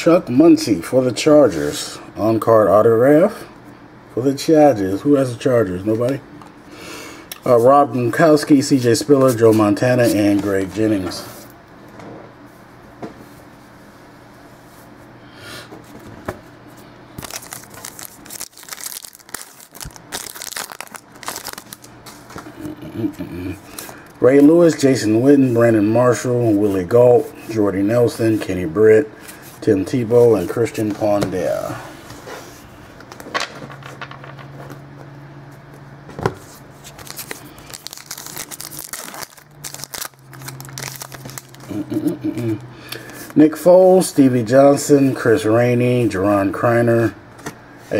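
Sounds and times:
faint steady hum: 0.0s - 47.9s
wrapper crinkling and tearing: 17.2s - 22.0s, 36.8s - 42.2s.

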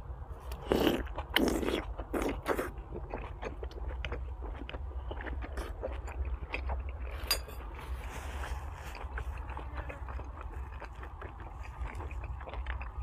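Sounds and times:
person chewing crunchy food: 0.4s - 13.0s.

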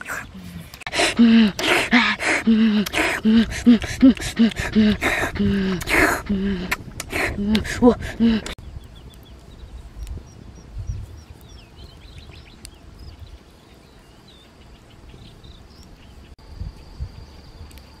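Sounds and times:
small birds chirping: 0.0s - 18.0s
sharp clicks: 2.8s - 6.0s
high insect trill: 14.0s - 18.0s.

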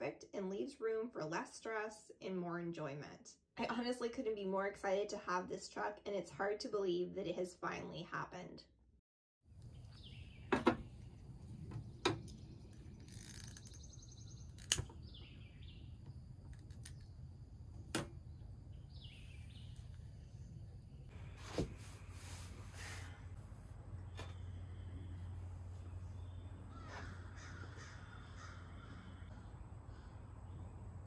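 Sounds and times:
low steady hum: 9.5s - 31.0s
bird calling: 24.0s - 30.6s.

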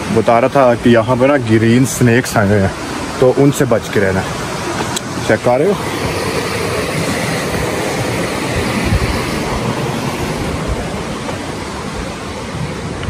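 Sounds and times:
steady rushing noise: 0.0s - 13.0s.

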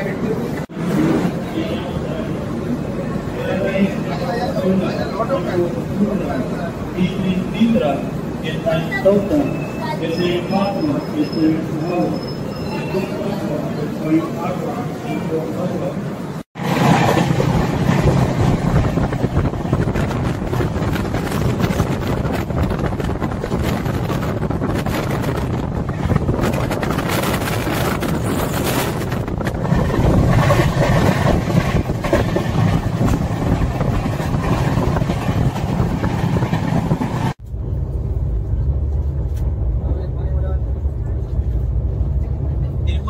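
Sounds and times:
train wheels rumbling on track: 0.0s - 43.0s.

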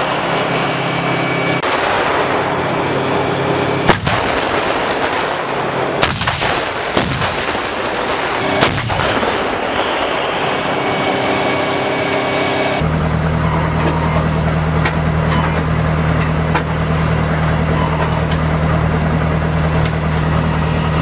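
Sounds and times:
dense rushing noise: 0.0s - 13.4s
low machinery drone: 0.0s - 21.0s.

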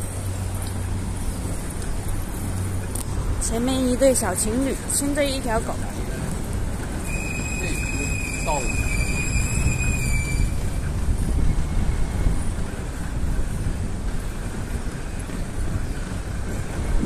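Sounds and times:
city traffic rumble: 0.0s - 17.0s.

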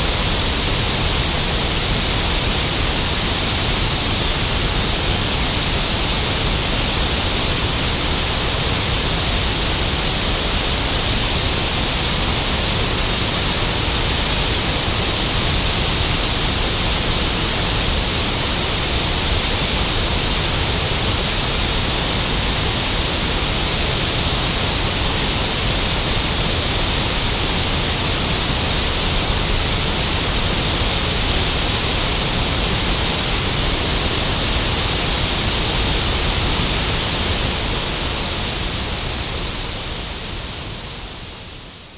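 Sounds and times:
water rushing over a dam: 0.0s - 41.9s.

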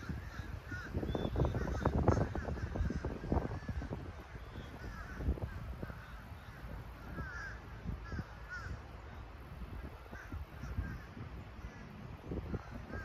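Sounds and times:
birds calling: 0.0s - 13.0s
low gusty rumble: 0.0s - 13.0s.

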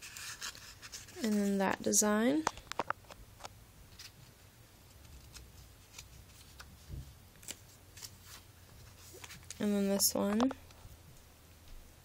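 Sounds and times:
notepad pages rustling: 0.0s - 1.7s, 4.0s - 10.6s.

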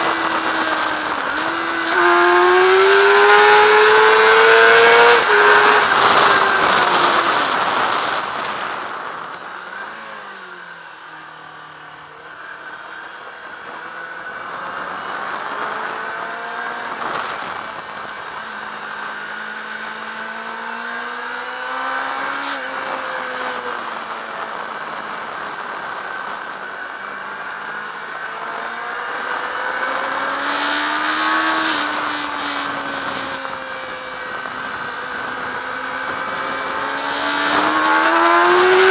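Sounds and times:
wind rushing over microphone: 0.0s - 10.1s, 22.2s - 38.9s
motorcycle engine at speed: 0.0s - 38.9s.

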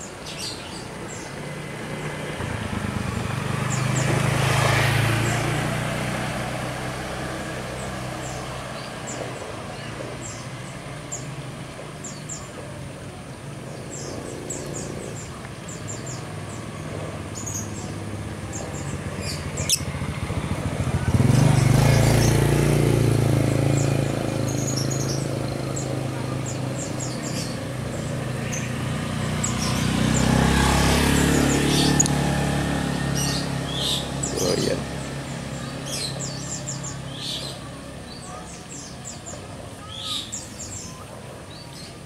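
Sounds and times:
motor vehicle passing: 0.0s - 42.0s
bird chirps: 13.7s - 20.0s, 32.8s - 42.0s.

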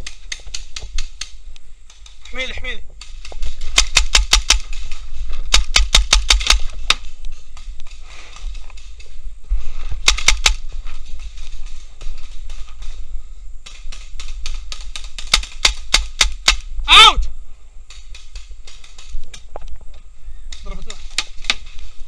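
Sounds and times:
paintball markers firing pops: 3.0s - 9.2s, 10.0s - 13.0s, 13.6s - 16.7s.

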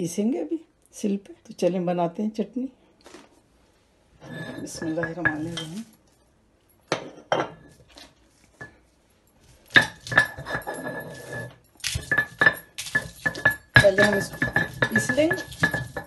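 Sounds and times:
stone roller knocking and grinding: 9.7s - 16.0s.

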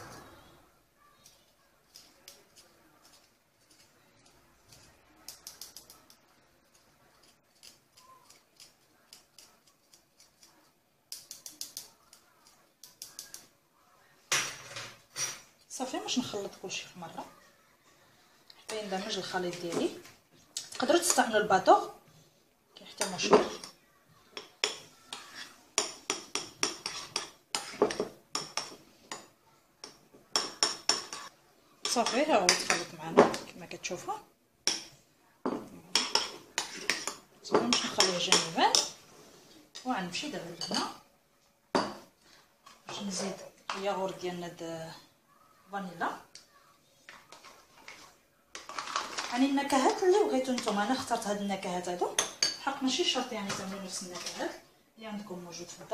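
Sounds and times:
metal spoon scraping in a sieve: 26.6s - 28.0s.

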